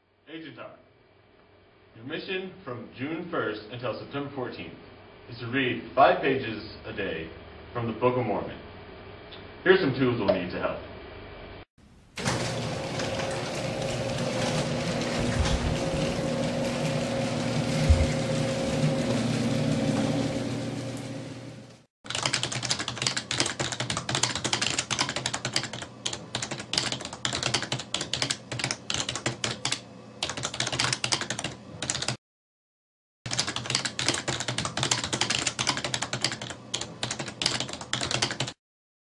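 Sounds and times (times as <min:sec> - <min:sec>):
mechanical hum: 0:00.1 - 0:32.1
keyboard typing clicks: 0:22.1 - 0:32.2, 0:33.3 - 0:38.6.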